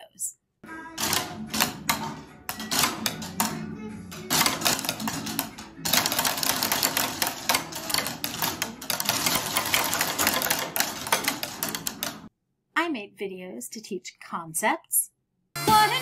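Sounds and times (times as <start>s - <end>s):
wooden rhythm sticks clacking: 1.0s - 12.3s.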